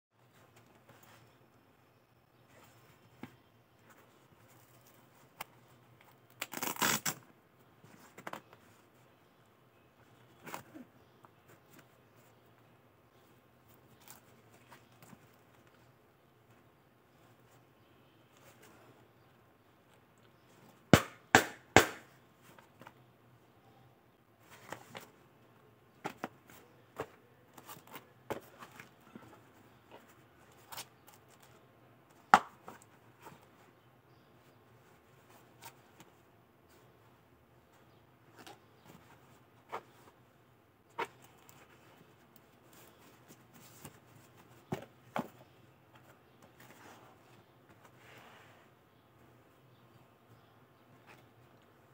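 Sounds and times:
knocks on hard plastic knee pads: 20.9 - 22.1, 32.3 - 32.6.

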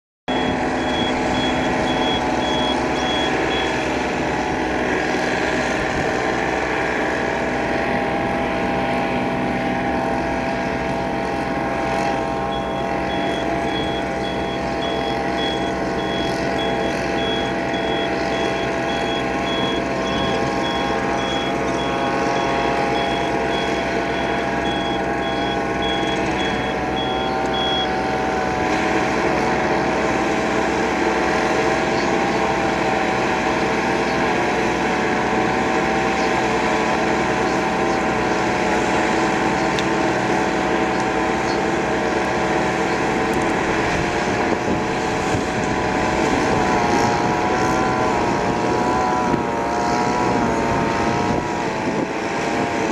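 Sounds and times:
high electronic beeps: 0.3 - 3.9, 12.4 - 27.9
tractor engine running: 0.3 - 52.9.

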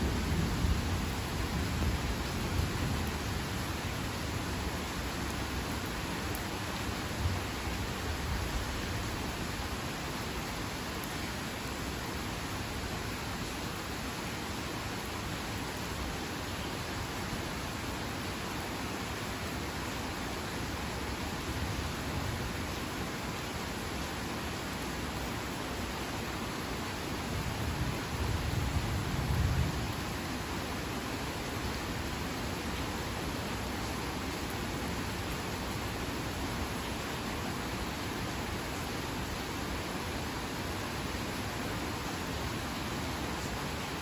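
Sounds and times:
low rumble of thunder: 0.0 - 3.6, 27.4 - 30.2
heavy rain on water and grass: 0.0 - 44.0.

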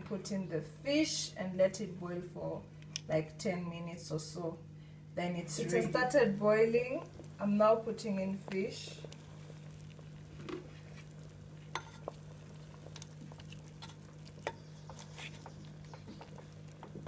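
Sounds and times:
steady low hum: 0.0 - 17.0
stew simmering: 5.7 - 17.0.

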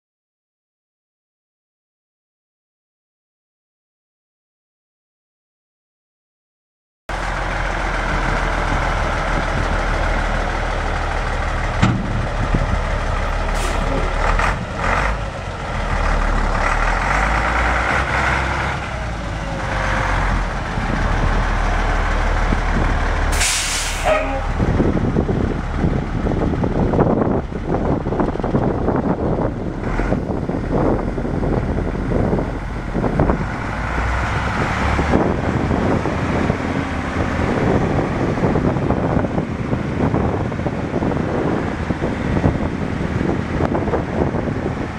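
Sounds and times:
diesel truck engine idling: 7.1 - 44.9
air hiss: 23.4 - 24.1.

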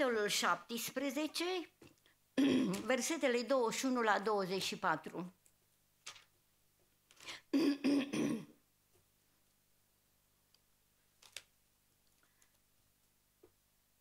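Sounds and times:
woman clearing her throat: 2.4 - 2.8, 7.5 - 8.6.

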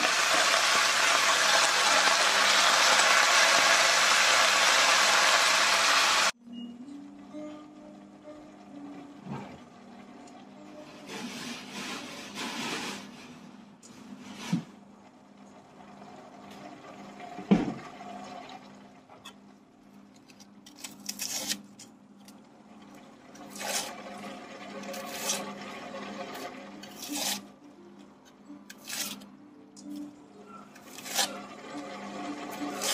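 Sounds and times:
onion skin rustling and scraping: 20.2 - 22.4, 26.8 - 27.4.

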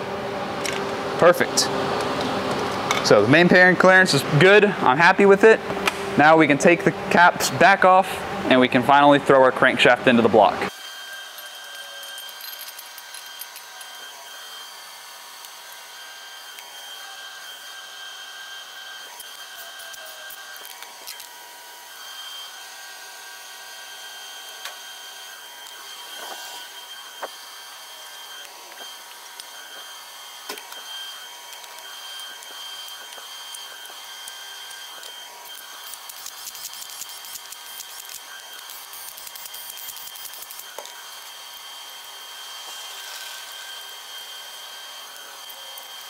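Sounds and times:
machinery whine: 0.0 - 46.0.

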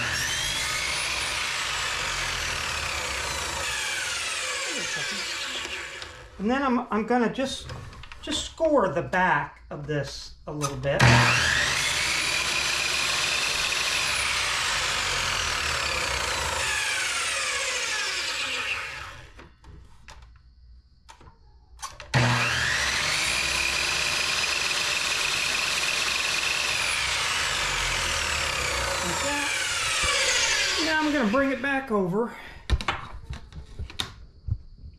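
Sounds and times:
miter saw motor whine: 0.0 - 6.4, 11.0 - 19.5, 22.1 - 31.9
saw cutting plastic strip: 0.0 - 6.4, 10.6 - 19.5, 21.8 - 31.7.

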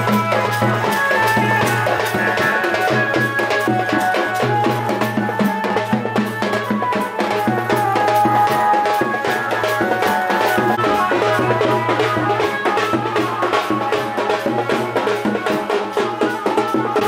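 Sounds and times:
sustained instrumental tones: 0.0 - 16.8.

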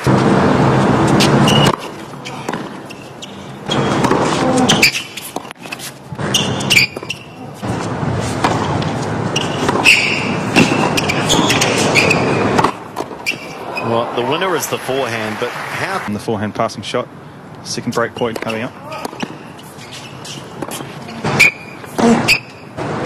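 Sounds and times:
tennis ball hits: 1.2 - 3.1, 3.7 - 5.8, 8.4 - 15.3, 18.3 - 22.5
crowd noise: 7.4 - 16.3
crowd applause: 13.6 - 16.1.

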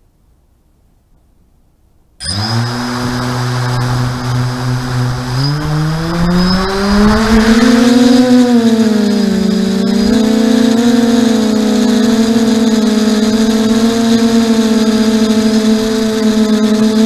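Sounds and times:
quadcopter motors humming: 2.2 - 17.0.

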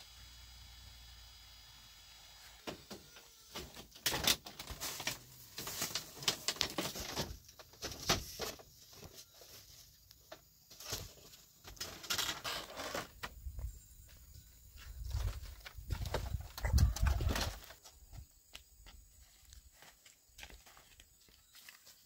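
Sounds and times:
bamboo panel rattling and knocking: 5.6 - 8.7, 15.0 - 17.8.

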